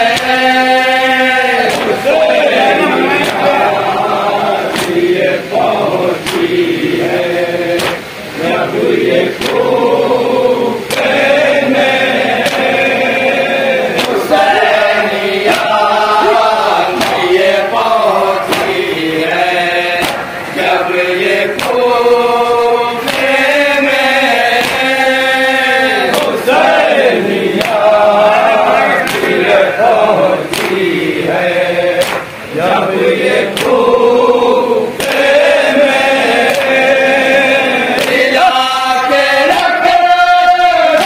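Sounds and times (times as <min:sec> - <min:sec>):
men chanting in chorus: 0:00.0 - 0:41.0
chest-beating slaps: 0:01.7 - 0:03.6, 0:04.7 - 0:05.0, 0:06.2 - 0:06.6, 0:07.8 - 0:08.1, 0:09.3 - 0:09.6, 0:10.9 - 0:11.2, 0:12.4 - 0:12.9, 0:14.0 - 0:14.5, 0:15.4 - 0:15.9, 0:16.9 - 0:18.9, 0:19.9 - 0:21.8, 0:23.0 - 0:23.4, 0:24.6 - 0:24.9, 0:27.6 - 0:28.0, 0:28.9 - 0:29.5, 0:30.4 - 0:30.9, 0:32.0 - 0:32.4, 0:33.5 - 0:33.8, 0:35.0 - 0:35.4, 0:36.4 - 0:36.8, 0:37.9 - 0:38.4.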